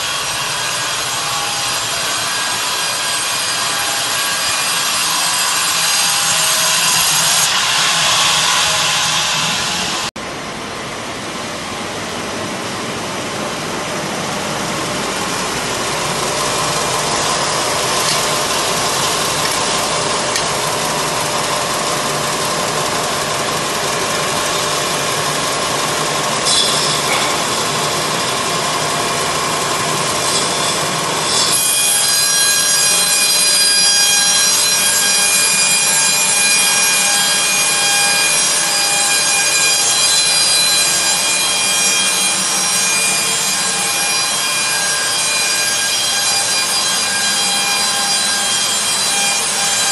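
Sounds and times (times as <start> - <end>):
band saw cutting log: 0.0 - 10.2, 13.8 - 49.9.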